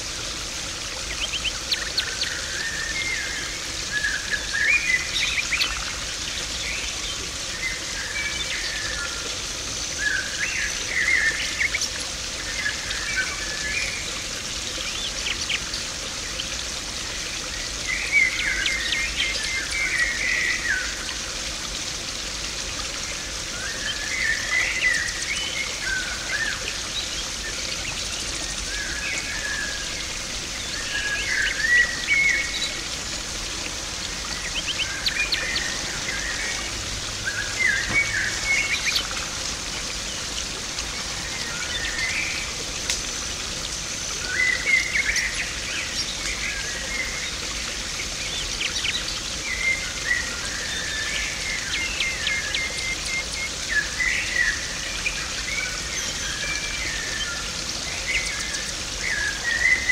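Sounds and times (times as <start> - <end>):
pond water splashing: 25.5 - 48.2.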